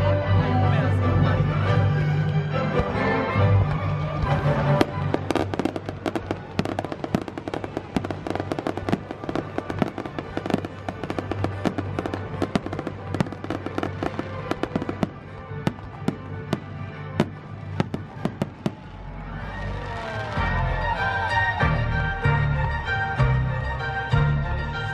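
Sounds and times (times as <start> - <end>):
music playing: 0.0 - 24.9
fireworks bangs and crackles: 3.7 - 19.2.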